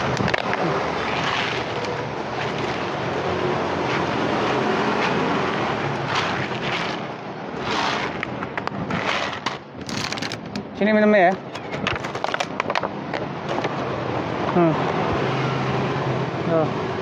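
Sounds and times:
dry kibble rattling into plastic tray: 9.0s - 12.8s.

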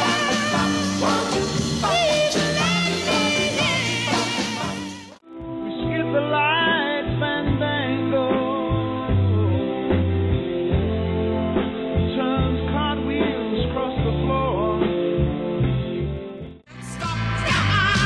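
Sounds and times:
song with singing and bass: 0.0s - 18.0s.

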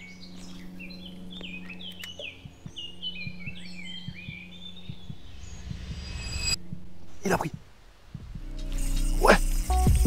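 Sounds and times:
songbirds singing: 0.0s - 9.2s
steady low hum: 0.0s - 9.8s
soft low thumps: 2.2s - 8.7s.

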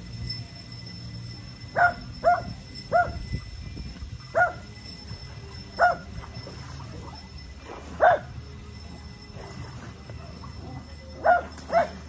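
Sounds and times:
small dog barking: 1.8s - 3.2s, 4.4s - 4.6s, 5.8s - 6.0s, 8.0s - 8.3s, 11.2s - 12.0s.

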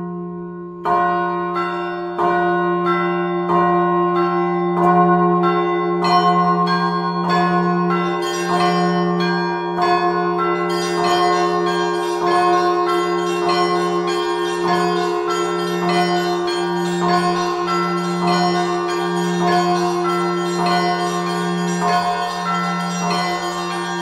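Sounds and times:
large bell humming: 0.0s - 24.0s
small church bells ringing: 0.0s - 24.0s
quick high bells: 6.0s - 24.0s.

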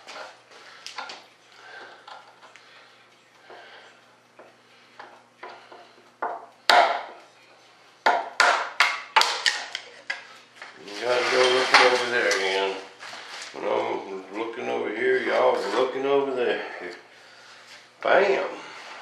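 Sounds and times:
sustained grating scrape: 10.8s - 13.5s.

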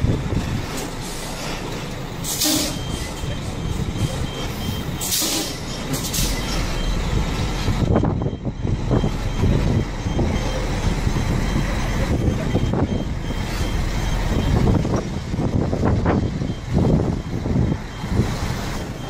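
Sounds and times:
truck diesel engine at low revs: 0.0s - 19.0s
air brake hisses: 1.0s - 2.8s, 5.0s - 6.4s
faint high beep: 2.4s - 15.0s, 16.1s - 19.0s.

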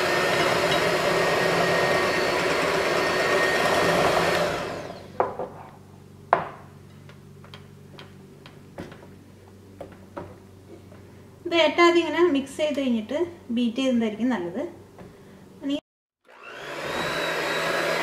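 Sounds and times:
electric hand mixer running: 0.0s - 5.2s, 16.2s - 18.0s.

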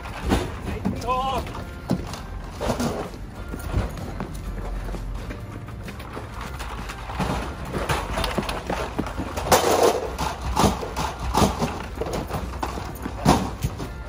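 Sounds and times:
glass bottles rattling and clinking: 0.0s - 14.0s
plastic crates knocking: 6.5s - 14.0s.

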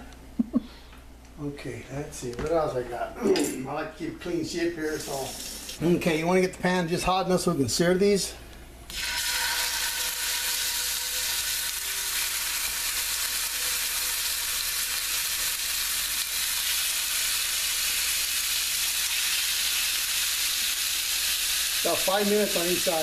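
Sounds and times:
meat sizzling in a pan: 8.9s - 23.0s.

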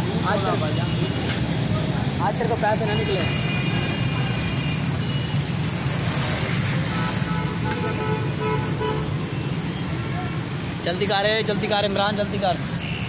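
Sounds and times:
road traffic engines: 0.0s - 13.0s.

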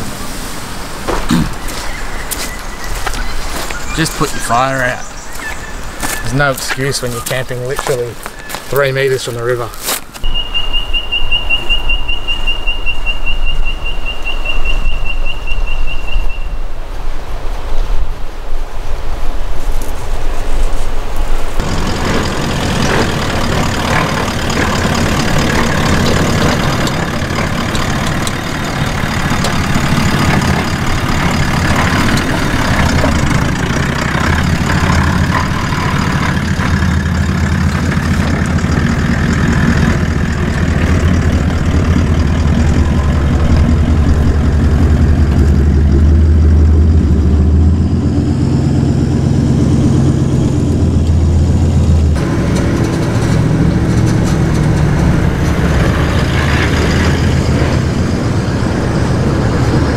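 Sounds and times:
water noise: 0.0s - 9.6s, 16.6s - 59.9s
engine running at low revs: 21.5s - 59.9s.

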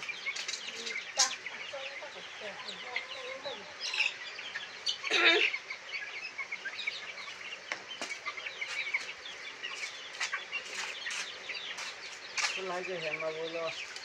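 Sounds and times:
chickens cheeping and clucking: 0.0s - 14.0s
chicken squawk: 1.6s - 12.0s.

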